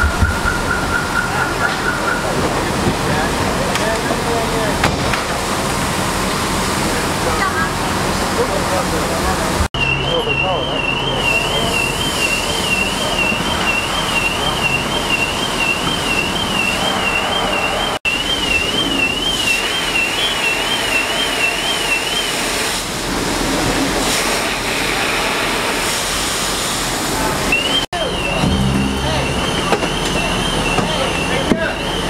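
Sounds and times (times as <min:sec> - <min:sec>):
car alarm warbling: 0:00.0 - 0:02.8, 0:09.8 - 0:22.7, 0:27.3 - 0:32.0
water spraying from fire hoses: 0:00.9 - 0:28.3, 0:29.7 - 0:32.0.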